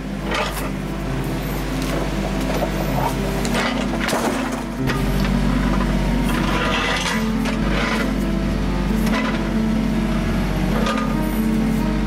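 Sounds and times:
diesel engine running: 0.0 - 12.0
wooden boards knocking and cracking: 1.8 - 5.3.

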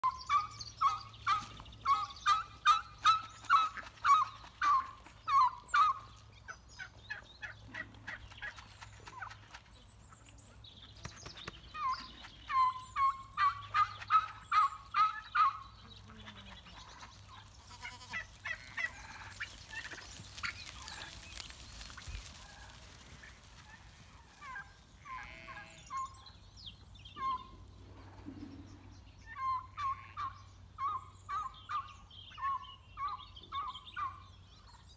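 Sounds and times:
turkeys calling: 0.0 - 9.6, 11.7 - 26.4, 27.1 - 34.8.

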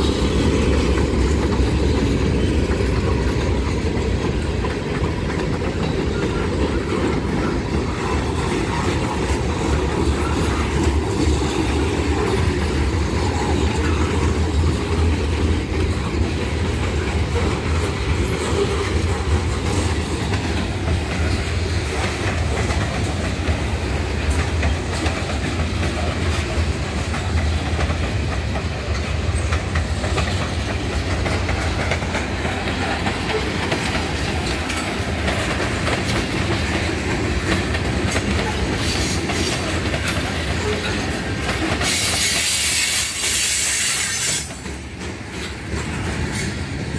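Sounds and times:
train wheels rumbling on rail: 0.0 - 46.9
wheels clacking over rail joints: 0.0 - 46.9.

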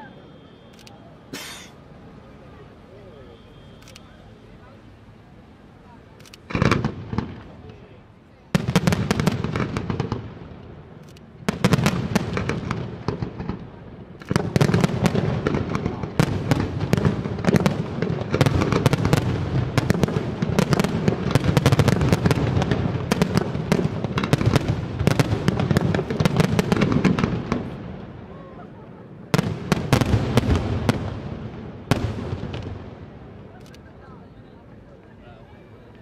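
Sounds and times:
fireworks bangs and crackle: 6.4 - 33.6.

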